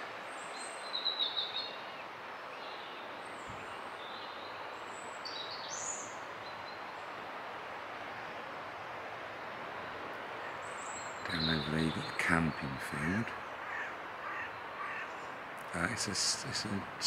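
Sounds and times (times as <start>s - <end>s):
small birds chirping: 0.0s - 7.2s, 8.0s - 17.0s
river rushing: 0.0s - 17.0s.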